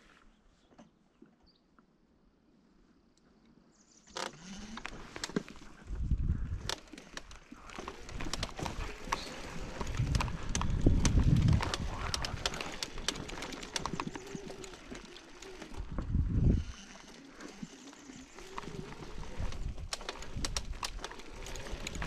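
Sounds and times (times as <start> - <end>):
low rumbles: 5.8 - 14.9.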